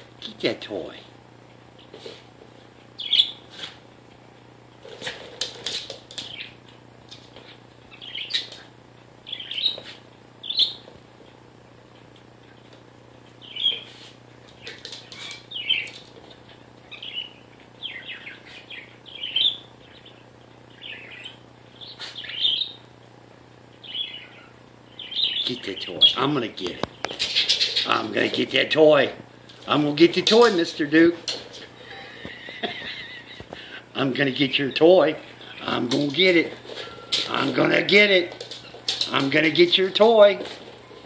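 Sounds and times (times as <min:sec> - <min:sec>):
parakeet chirping: 0:03.0 - 0:03.4, 0:07.9 - 0:08.5, 0:09.2 - 0:09.8, 0:10.4 - 0:10.8, 0:13.4 - 0:13.9, 0:15.5 - 0:15.9, 0:16.9 - 0:22.8, 0:23.8 - 0:26.2.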